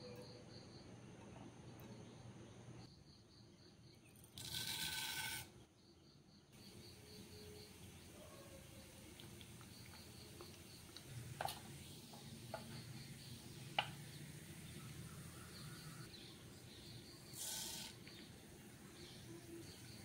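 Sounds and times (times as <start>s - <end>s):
seeds hissing in hot oil: 6.6s - 20.0s
lentils sizzling in oil: 7.2s - 16.1s, 17.2s - 19.8s.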